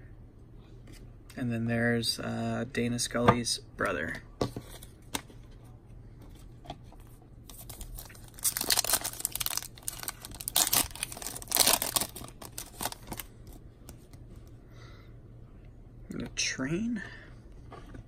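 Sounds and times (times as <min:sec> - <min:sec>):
cards rustling: 0:07.4 - 0:14.2
wrapper crinkling and ripping: 0:07.5 - 0:13.6.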